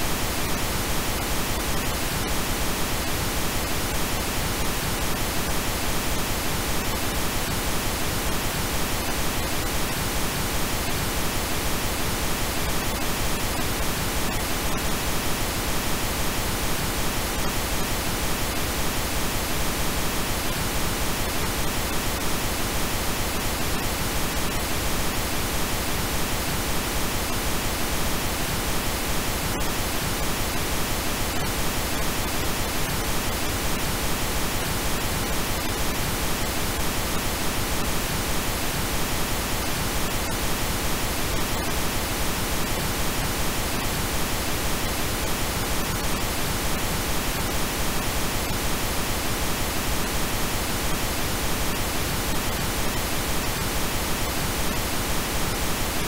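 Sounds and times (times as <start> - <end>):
pink noise hiss: 0.0 - 56.0.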